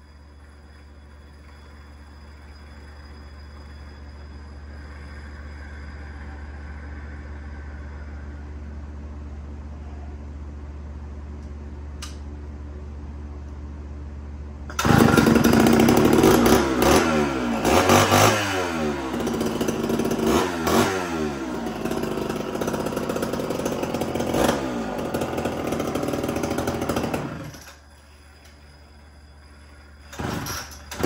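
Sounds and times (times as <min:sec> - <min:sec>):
chainsaw engine revving: 0:14.7 - 0:27.8, 0:30.1 - 0:31.0.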